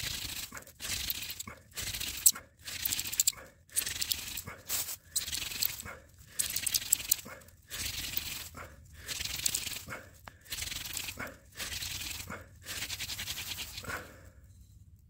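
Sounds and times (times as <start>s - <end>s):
hand drill spindle grinding wood: 0.0s - 4.4s, 5.2s - 5.8s, 6.4s - 9.9s, 10.5s - 13.9s.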